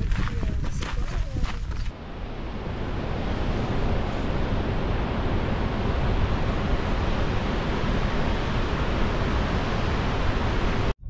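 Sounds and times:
wind buffeting microphone: 0.0s - 10.9s.

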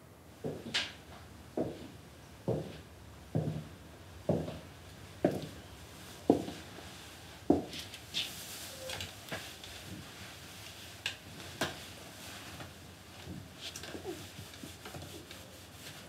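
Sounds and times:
boots footsteps on hard floor: 2.5s - 2.8s, 3.4s - 3.7s, 4.3s - 4.6s.

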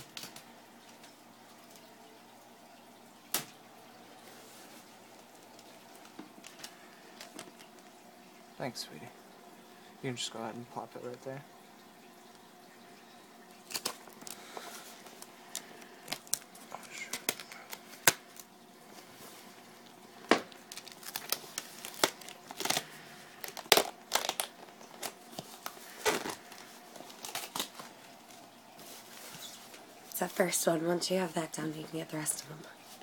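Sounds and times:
packing tape crinkling and tearing: 13.6s - 18.5s, 20.3s - 29.7s.

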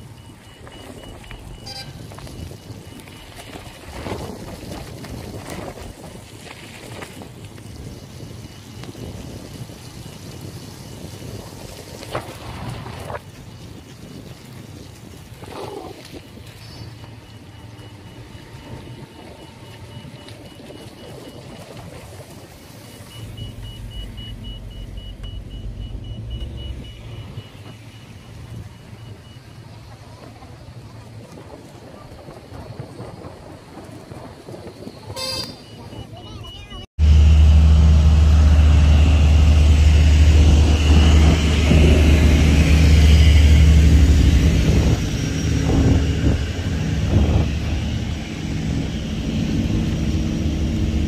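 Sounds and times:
car engine and tyre noise: 0.0s - 51.0s
low street rumble: 0.0s - 51.0s
low rumble: 22.5s - 30.6s, 37.0s - 51.0s
faint high beeping: 22.8s - 29.6s.

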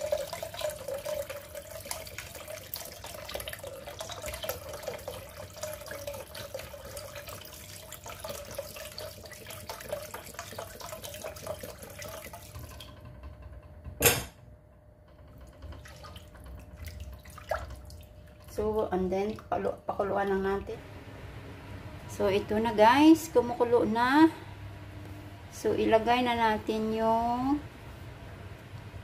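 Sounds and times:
broth pouring into pot: 0.0s - 13.0s.

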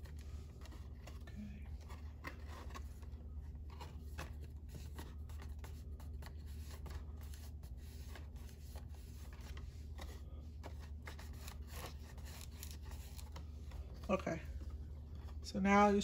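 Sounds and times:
cardstock rustling and scraping: 0.0s - 15.4s
steady low hum: 0.0s - 16.0s.

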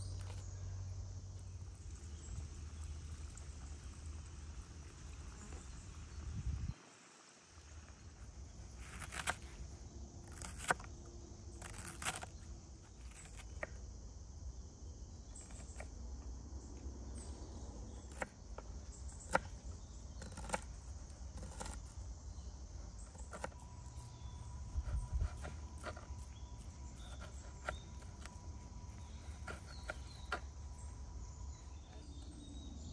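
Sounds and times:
low steady rumble: 0.0s - 6.8s.

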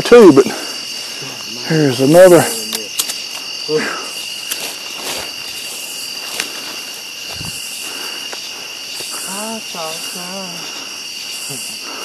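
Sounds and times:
crickets chirping: 0.0s - 12.0s
sharp clicks: 2.6s - 3.4s
footsteps rustling through brush: 3.2s - 10.2s.

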